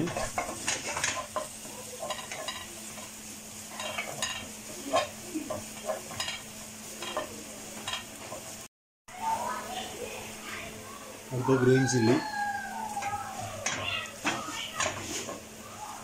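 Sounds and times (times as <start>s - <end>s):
spatula scraping pan: 0.0s - 8.6s, 13.0s - 15.5s
onion sizzling in pan: 0.0s - 16.0s.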